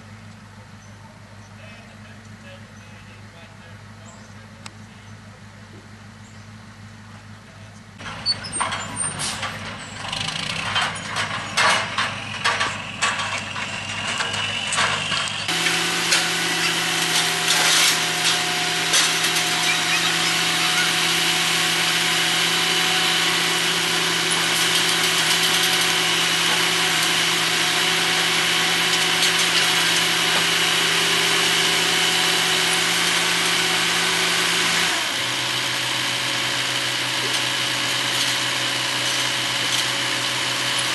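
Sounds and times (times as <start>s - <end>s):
irregular knocks and clatter: 8.0s - 15.5s.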